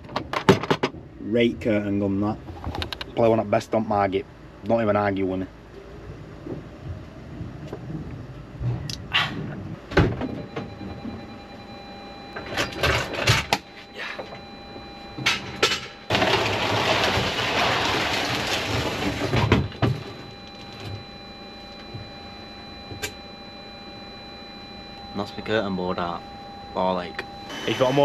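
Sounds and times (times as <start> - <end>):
knocks and clunks: 0.0 - 1.2, 6.4 - 11.3, 12.3 - 21.1
board scraping along van floor: 16.1 - 20.2.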